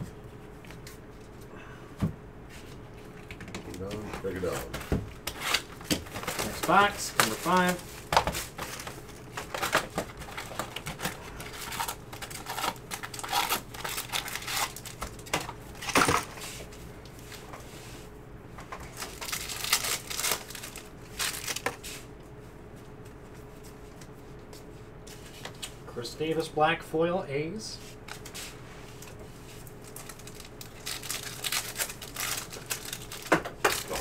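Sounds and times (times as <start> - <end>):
cards being shuffled: 2.6 - 15.2
foil packs crinkling and ripping: 4.2 - 16.0, 18.8 - 22.0, 29.0 - 34.0.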